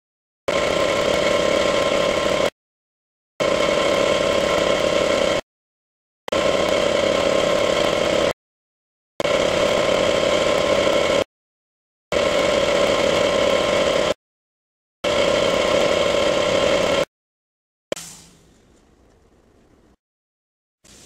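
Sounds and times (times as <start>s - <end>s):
machine humming: 6.3s - 8.4s, 9.2s - 11.3s, 15.0s - 17.1s.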